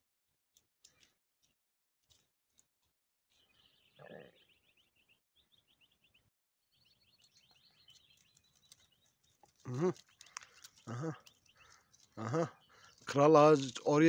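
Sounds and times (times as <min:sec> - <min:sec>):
small bird chirping trills: 0:03.3 - 0:14.0
low-pitched vocal call: 0:09.7 - 0:10.0.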